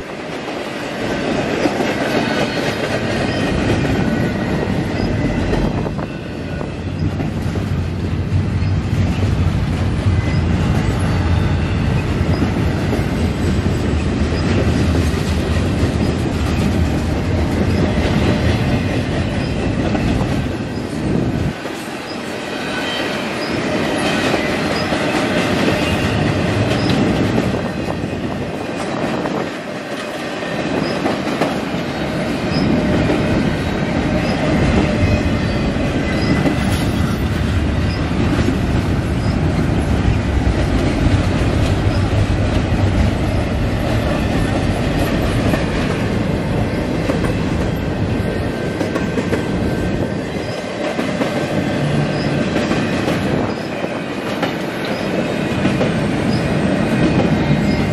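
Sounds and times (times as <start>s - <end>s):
train wheels rumbling on rails: 0.0s - 57.9s
faint high wheel squeal: 22.0s - 24.9s, 34.2s - 37.3s.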